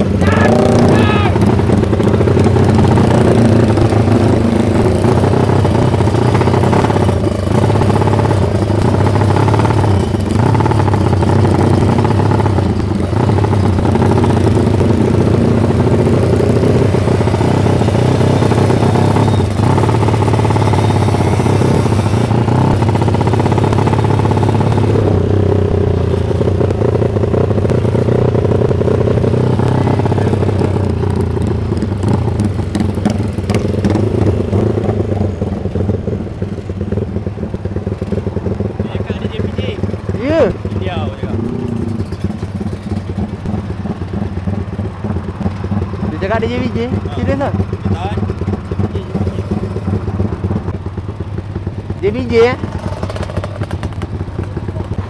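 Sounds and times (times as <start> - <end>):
constant rushing noise: 0.0 - 55.0
motorcycle engine cruising: 0.0 - 55.0.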